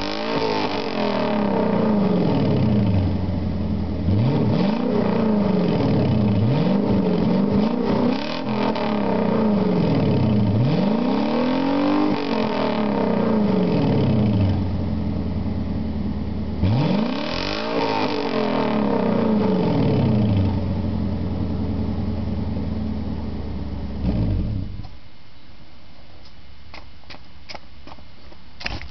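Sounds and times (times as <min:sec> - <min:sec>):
car engine idling: 0:00.0 - 0:08.2, 0:12.9 - 0:16.8, 0:18.9 - 0:27.0
car engine revving: 0:00.0 - 0:24.9.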